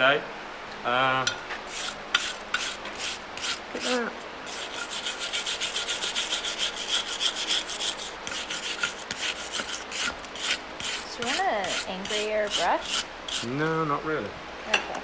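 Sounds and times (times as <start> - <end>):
wire brush scratching metal: 1.7 - 13.6.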